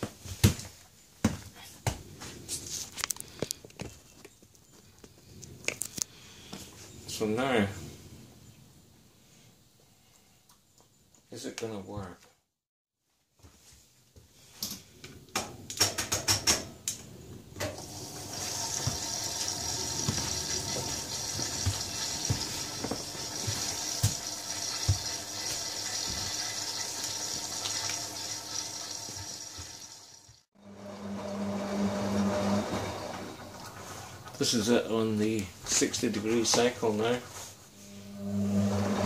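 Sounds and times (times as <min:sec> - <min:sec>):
water hissing into washing machine: 0:17.6 - 0:34.6, 0:38.1 - 0:39.0
low hum: 0:30.6 - 0:34.4, 0:37.8 - 0:39.0.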